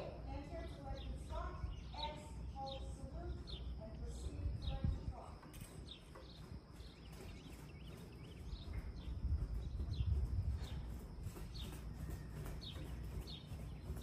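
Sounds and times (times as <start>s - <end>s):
bird chirping: 0.3s - 14.0s
horse hoofbeats on sand: 0.4s - 14.0s.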